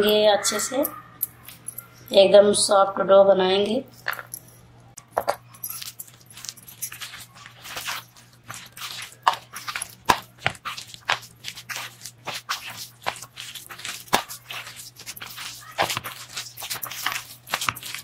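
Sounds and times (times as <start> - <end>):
hand kneading wet mixture: 5.0 - 18.0.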